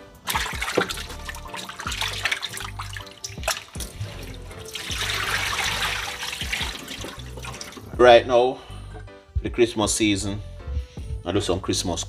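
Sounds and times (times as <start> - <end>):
running water: 0.2 - 8.0.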